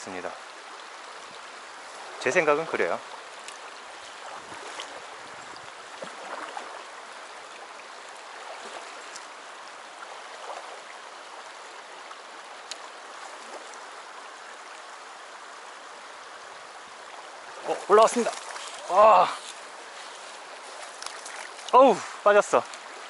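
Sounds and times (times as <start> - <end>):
stream running over gravel: 0.0 - 23.0.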